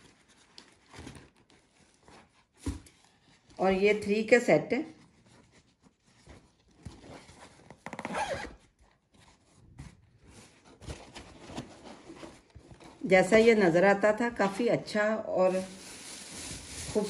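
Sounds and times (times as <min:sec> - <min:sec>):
fabric boxes rustling and scraping: 0:05.2 - 0:17.0.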